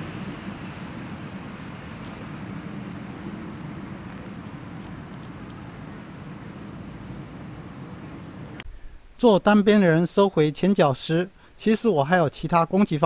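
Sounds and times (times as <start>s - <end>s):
night insects chirping: 0.0s - 8.7s
low steady rumble: 0.0s - 9.1s.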